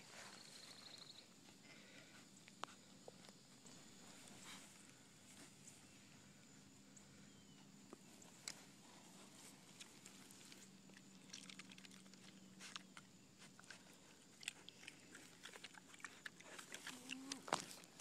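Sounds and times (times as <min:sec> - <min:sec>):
piglet crunching and smacking: 0:08.4 - 0:18.0.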